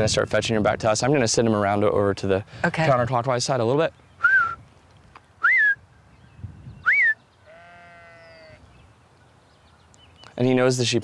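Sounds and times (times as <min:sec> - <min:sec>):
herding whistle sharp notes: 0:04.2 - 0:04.6, 0:05.4 - 0:05.8, 0:06.8 - 0:07.2
sheep bleating: 0:07.4 - 0:08.6.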